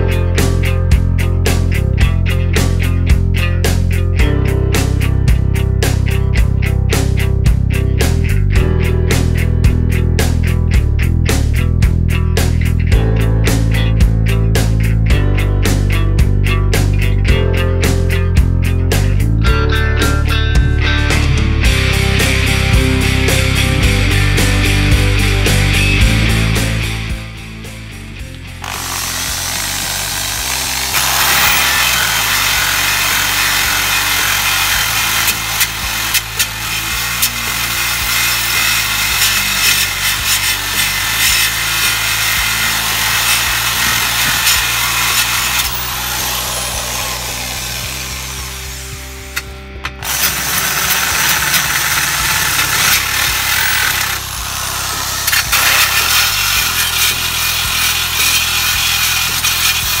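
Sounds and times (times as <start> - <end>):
background music: 0.0 - 60.0
abrasive disc grinding metal: 28.6 - 60.0.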